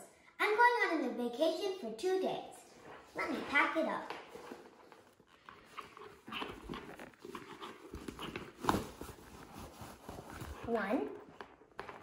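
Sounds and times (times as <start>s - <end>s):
fabric rustling: 2.7s - 12.0s.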